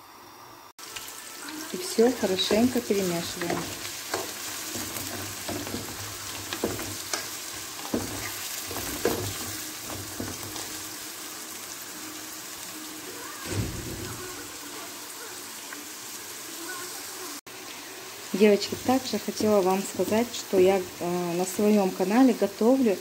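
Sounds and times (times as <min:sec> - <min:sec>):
vegetables sizzling in oil: 0:00.1 - 0:23.0
wooden spatula scraping pan: 0:02.4 - 0:10.8
low thump: 0:13.5 - 0:14.4.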